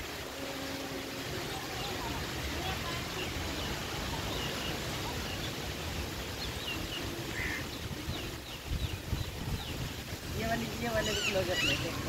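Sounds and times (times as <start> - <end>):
low outdoor background noise: 0.0 - 12.0
small birds chirping: 1.0 - 12.0
wind bumps on microphone: 7.8 - 10.6.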